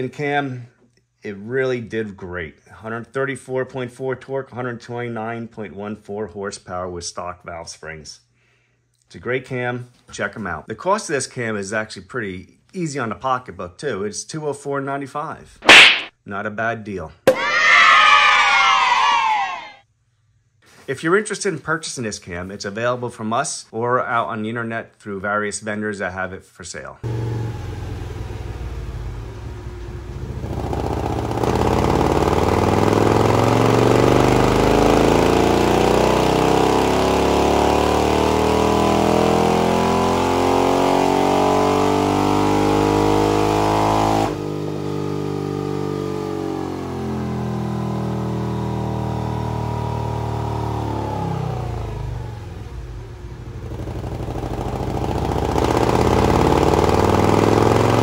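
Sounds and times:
motorcycle engine revving: 27.0s - 58.0s.

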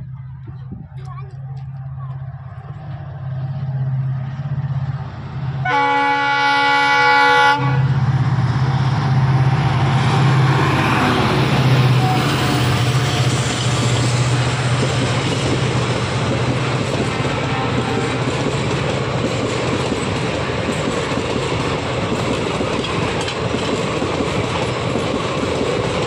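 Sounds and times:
diesel locomotive engine hum: 0.0s - 26.0s
train coaches rumbling over rails: 0.0s - 26.0s
multi-tone train horn: 5.6s - 8.1s, 10.2s - 14.7s, 17.0s - 18.6s.

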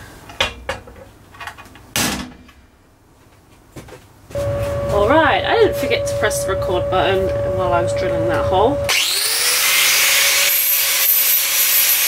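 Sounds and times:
steady hum: 4.3s - 9.5s.

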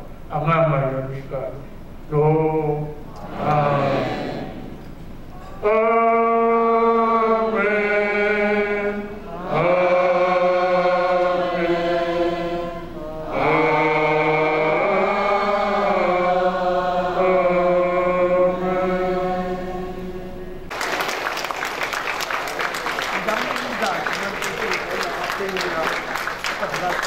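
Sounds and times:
elderly man chanting: 2.1s - 4.6s, 5.6s - 19.6s.

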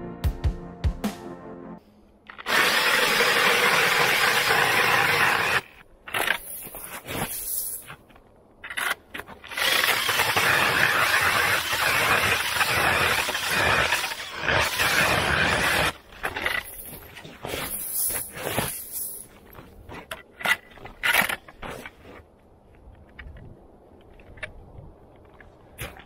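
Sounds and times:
drill auger grinding through ice: 2.3s - 7.5s, 8.6s - 19.1s
short scrapes: 4.8s - 9.4s, 14.5s - 22.3s.

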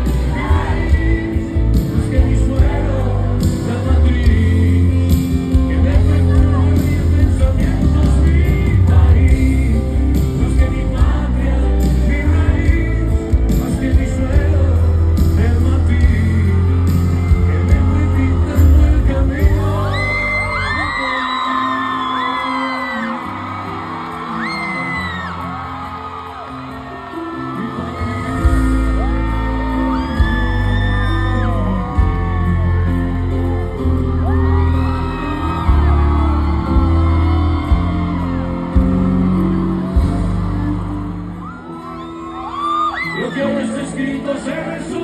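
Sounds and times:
crowd whooping and singing: 0.0s - 45.0s
live pop-rock band: 0.0s - 45.0s.

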